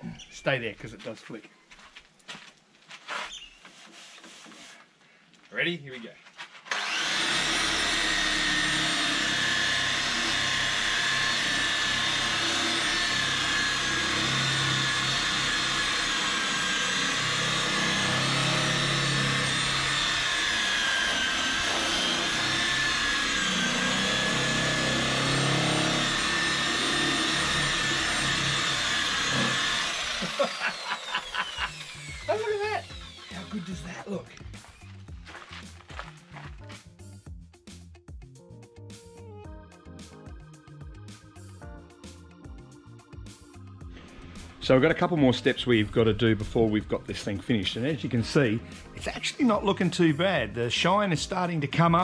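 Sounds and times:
electric polisher motor whine: 0:06.7 - 0:34.9, 0:42.1 - 0:44.8.

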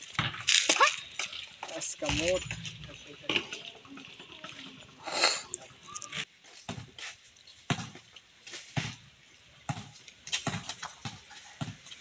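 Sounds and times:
basketball bouncing on concrete: 0:00.1 - 0:00.5, 0:06.7 - 0:06.9, 0:07.7 - 0:08.1, 0:09.7 - 0:12.0.

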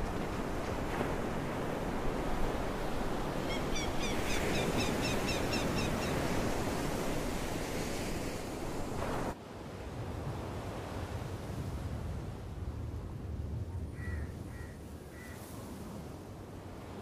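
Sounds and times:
surf washing over rocks: 0:00.0 - 0:09.4.

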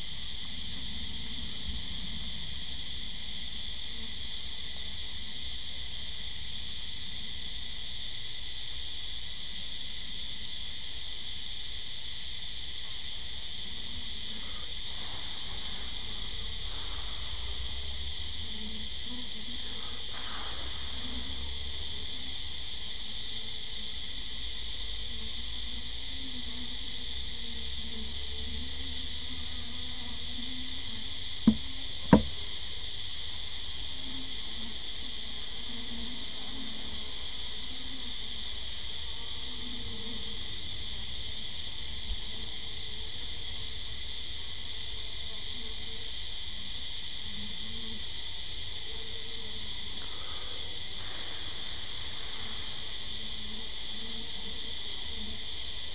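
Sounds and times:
insects chirping: 0:00.0 - 0:55.9
wooden frame knocks: 0:31.5 - 0:32.4.

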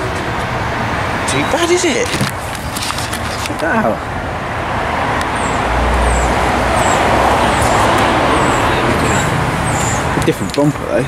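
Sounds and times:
vehicle driving past: 0:04.1 - 0:10.2.

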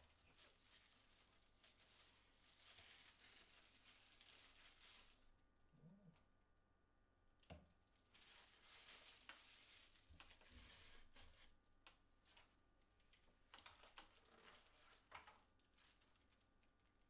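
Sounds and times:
plastic packaging crinkling: 0:00.0 - 0:05.3, 0:07.9 - 0:11.4, 0:13.2 - 0:17.0.

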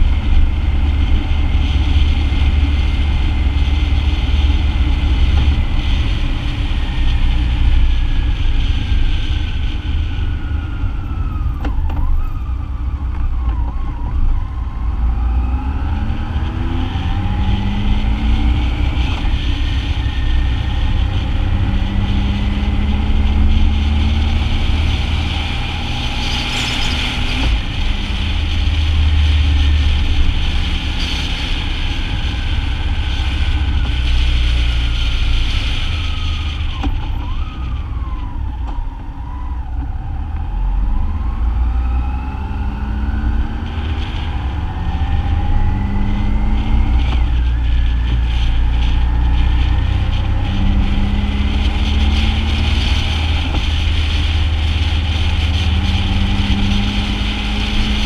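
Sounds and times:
motorcycle engine rumble: 0:00.0 - 0:58.0
wind rush: 0:00.0 - 0:58.0.

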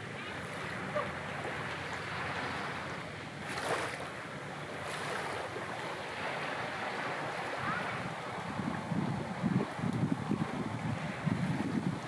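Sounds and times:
sea surf washing ashore: 0:00.0 - 0:12.0
wind on microphone: 0:04.8 - 0:12.0.

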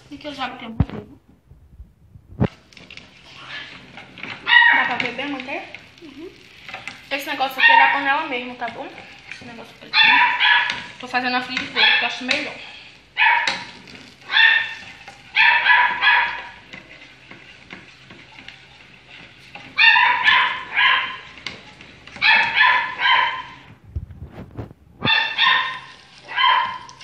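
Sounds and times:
small dog yapping: 0:04.4 - 0:05.0, 0:10.0 - 0:11.0, 0:13.2 - 0:16.6, 0:19.8 - 0:21.4, 0:22.2 - 0:23.7, 0:25.0 - 0:27.0.

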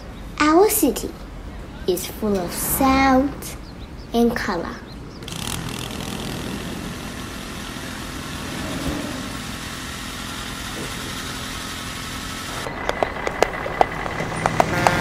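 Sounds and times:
rumble of road traffic: 0:00.0 - 0:15.0
sharp clicks: 0:05.2 - 0:06.6.

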